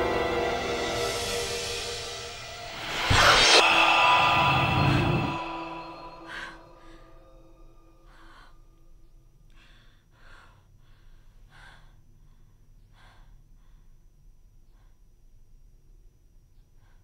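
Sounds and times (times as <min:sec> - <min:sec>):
low steady hum: 0:00.0 - 0:17.0
woman breathing hard: 0:03.2 - 0:15.2.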